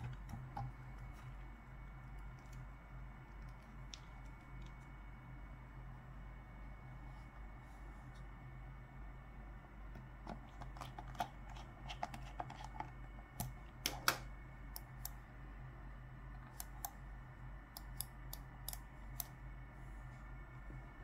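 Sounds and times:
low electrical hum: 0.0 - 21.0
computer mouse clicks: 16.4 - 17.0, 17.7 - 19.4.

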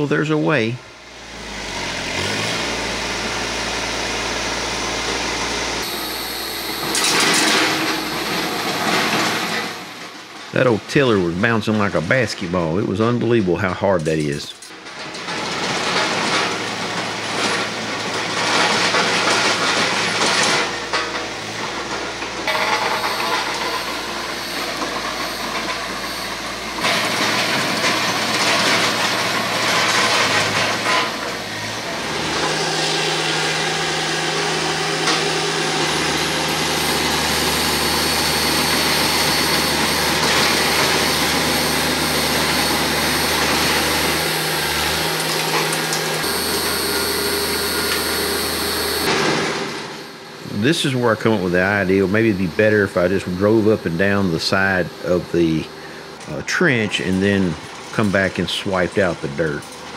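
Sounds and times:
tractor engine rumbling: 0.0 - 59.9
rotary tiller churning clay: 22.4 - 49.7.

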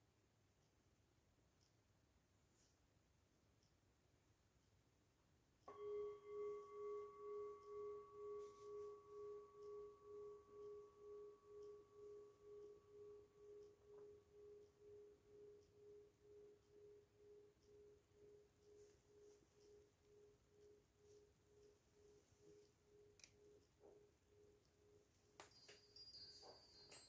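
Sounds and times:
singing bowl ringing: 5.7 - 18.4, 25.4 - 27.0.

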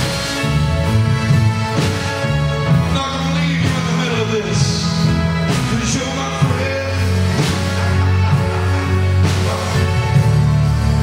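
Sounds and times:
drum kit with cymbal strikes: 0.0 - 11.0
held bass notes: 0.0 - 11.0
man singing: 2.6 - 10.6.

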